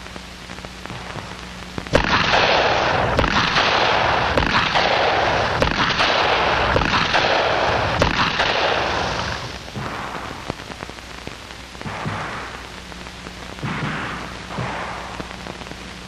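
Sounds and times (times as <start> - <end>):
film soundtrack hiss and crackle: 0.0 - 16.0.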